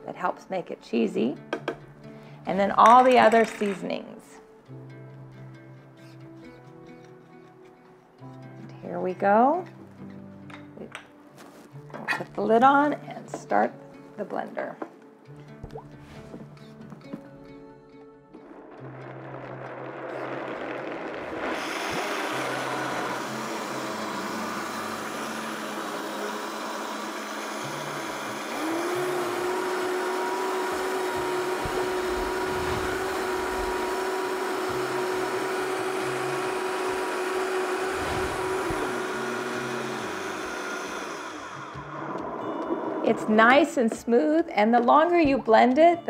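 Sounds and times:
blender running: 20.2s - 43.2s.

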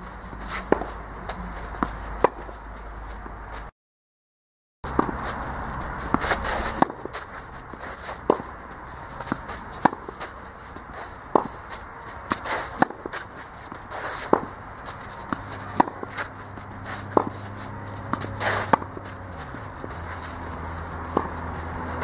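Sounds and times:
tennis racket hitting ball: 0.0s - 3.3s, 4.9s - 22.0s
tennis ball bouncing: 0.0s - 3.4s, 4.9s - 22.0s
shoes sliding on clay: 0.1s - 3.7s, 4.9s - 22.0s.

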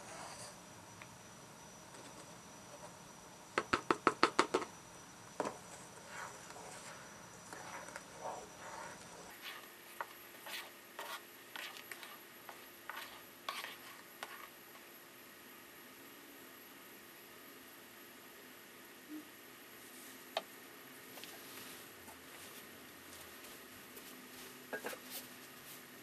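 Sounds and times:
jelly boiling: 4.8s - 16.0s
spatula knocking and scraping pan: 9.3s - 14.5s, 24.7s - 25.0s.

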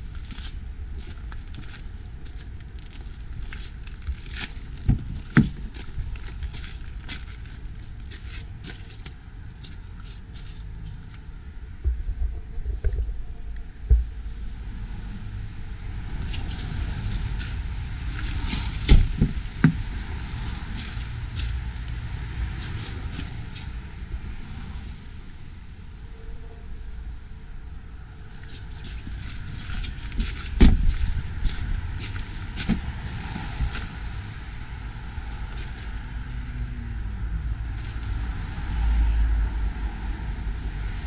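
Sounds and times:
wind rumble: 0.0s - 41.0s
microphone handling noise: 11.0s - 14.4s, 28.6s - 33.9s.

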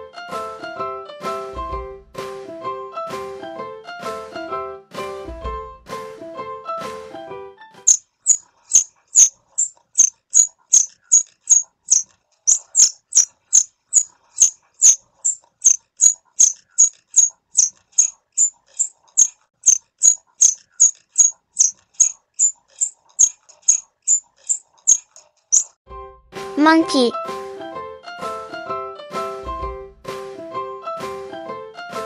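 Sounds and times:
squirrel chirping: 7.9s - 25.7s.

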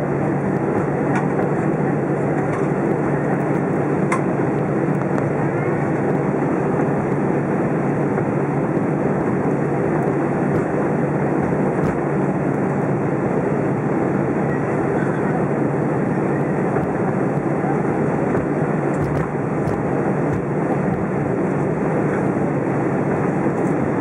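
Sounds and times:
jet engines: 0.0s - 24.0s
wheels rumbling on pavement: 8.0s - 13.0s, 14.9s - 22.8s.

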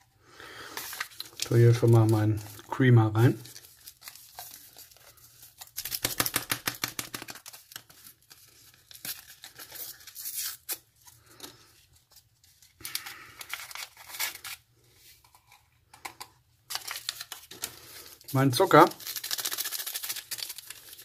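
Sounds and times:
paper packet tearing and crinkling: 0.8s - 10.9s, 12.8s - 14.7s, 16.7s - 21.0s.

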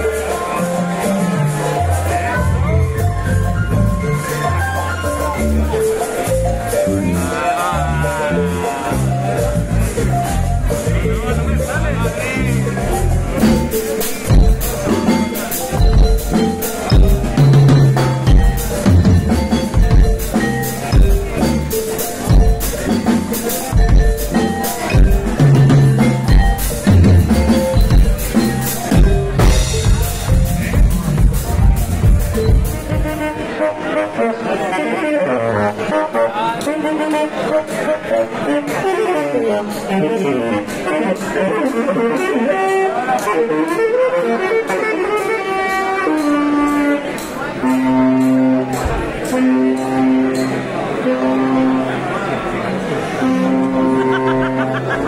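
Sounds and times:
drum kits with cymbals: 0.0s - 55.0s
held mid-range instrument notes: 0.0s - 55.0s
live band music: 0.0s - 55.0s
saxophone melody: 0.0s - 55.0s
deep bass line: 1.3s - 33.3s.

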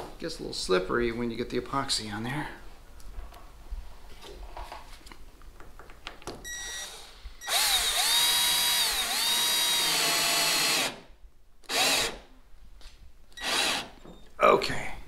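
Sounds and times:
cordless drill motor whining: 6.5s - 11.0s, 11.6s - 12.2s, 13.4s - 14.0s.

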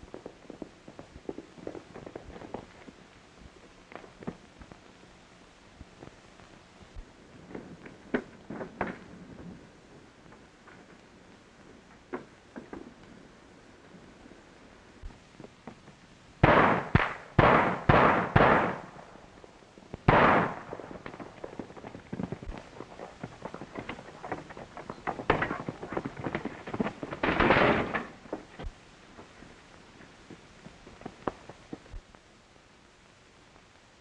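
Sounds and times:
pistol gunshots: 16.4s - 19.2s, 20.1s - 21.3s
galloping horse hoofbeats: 21.0s - 28.7s.

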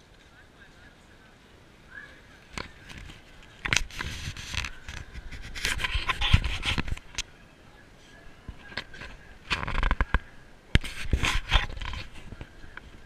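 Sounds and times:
rubbing against camera housing: 2.5s - 7.3s, 8.5s - 13.0s.

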